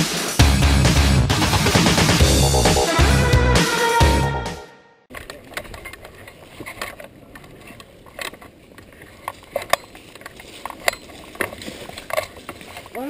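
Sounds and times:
intro music: 0:00.0 - 0:05.0.

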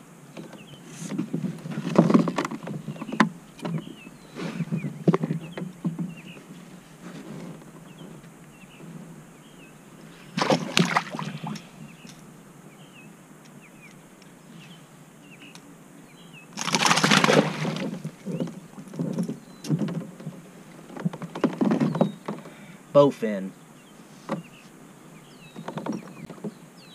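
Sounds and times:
fish thrashing and splashing water: 0:10.3 - 0:11.7, 0:16.6 - 0:18.9
faint bird chirps: 0:11.1 - 0:16.6, 0:19.3 - 0:19.8.

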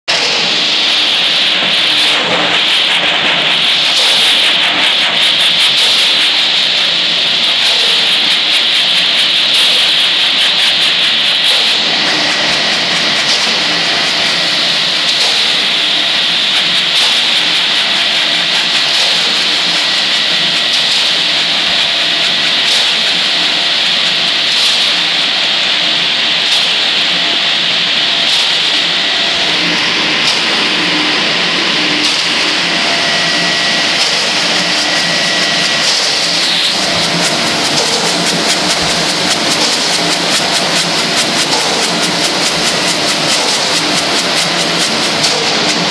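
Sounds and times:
drum mixer tumbling wet load: 0:33.8 - 0:45.9.

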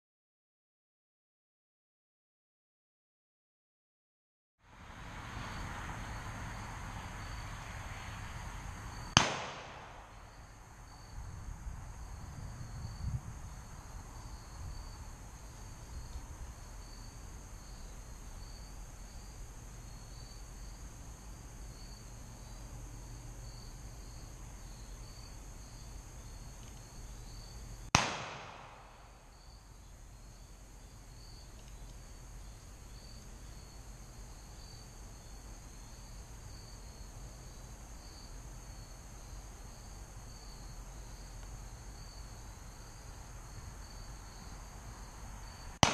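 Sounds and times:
gunshots: 0:09.2 - 0:10.3, 0:28.0 - 0:29.2.

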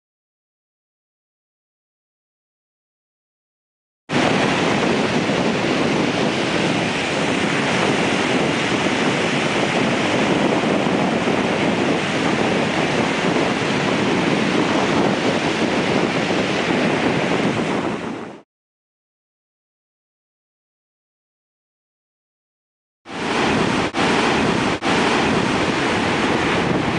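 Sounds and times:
surf breaking on shore: 0:04.1 - 0:18.4, 0:23.1 - 0:26.9
wind on microphone: 0:04.1 - 0:18.4, 0:23.1 - 0:26.9.

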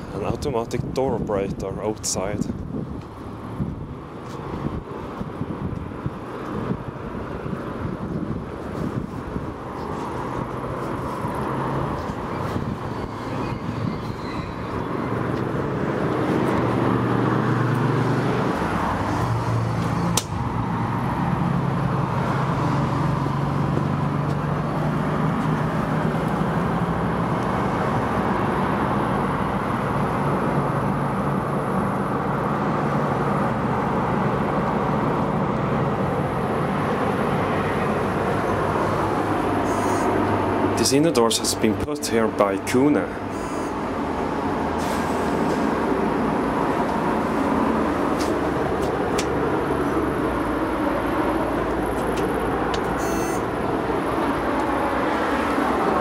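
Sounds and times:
sharp click: 0:20.1 - 0:20.4.

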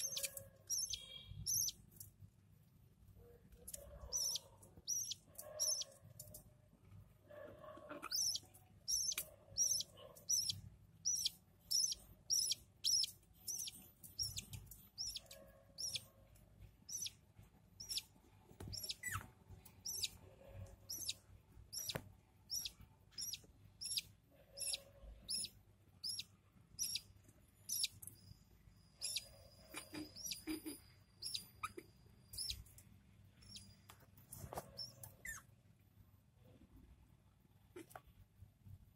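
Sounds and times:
budgerigar chick begging chirps: 0:00.0 - 0:01.8, 0:04.0 - 0:06.0, 0:07.9 - 0:16.1, 0:16.9 - 0:17.2, 0:17.8 - 0:18.1, 0:18.7 - 0:19.2, 0:19.8 - 0:20.2, 0:20.9 - 0:28.0, 0:28.9 - 0:32.6.

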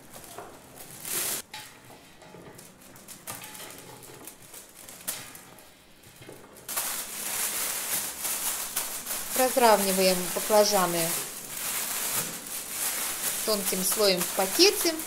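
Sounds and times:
plastic bag crinkling: 0:00.0 - 0:01.5, 0:02.5 - 0:05.8, 0:06.6 - 0:15.0
food pieces patters: 0:06.6 - 0:15.0.

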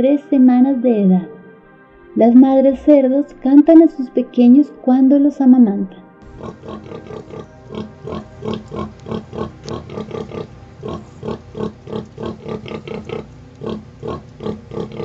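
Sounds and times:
sow grunting: 0:06.3 - 0:15.0.

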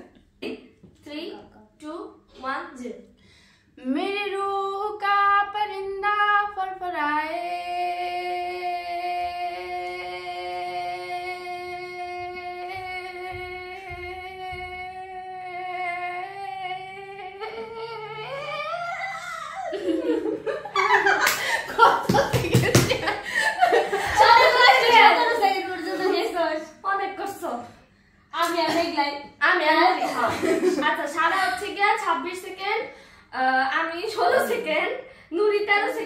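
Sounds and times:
women laughing: 0:18.5 - 0:26.3, 0:30.0 - 0:31.7.

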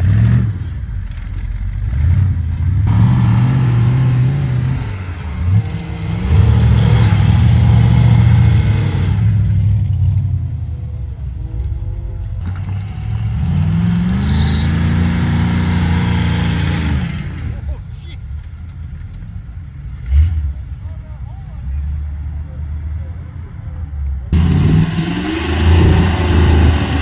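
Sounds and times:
buggy engine revving: 0:00.0 - 0:17.9, 0:24.2 - 0:27.0.

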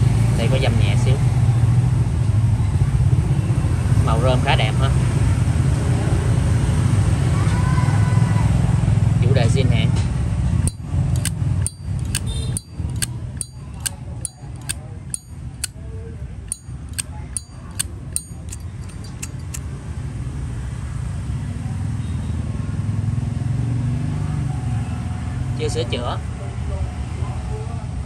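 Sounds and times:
lighter lid clicking: 0:10.7 - 0:15.3, 0:16.5 - 0:19.6.

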